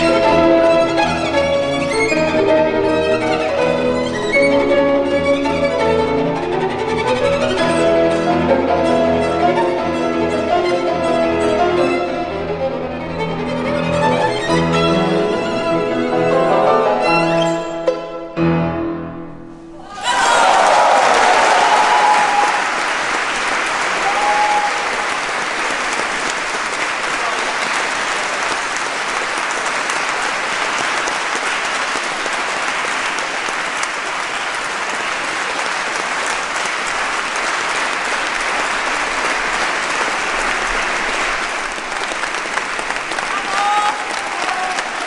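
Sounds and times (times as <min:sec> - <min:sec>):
large audience applauding: 0:00.0 - 0:04.6, 0:19.8 - 0:45.0.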